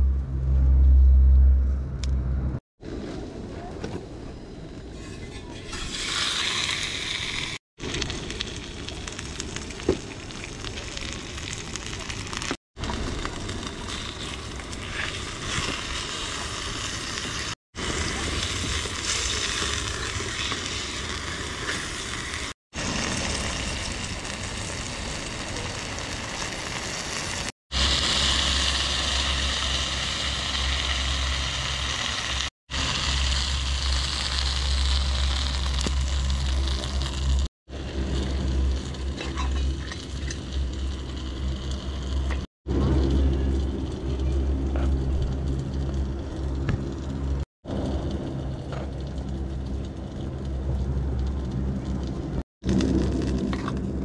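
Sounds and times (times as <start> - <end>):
low rumble: 0.0 - 3.5, 33.0 - 54.0
pork sizzling in a pan: 5.7 - 42.5.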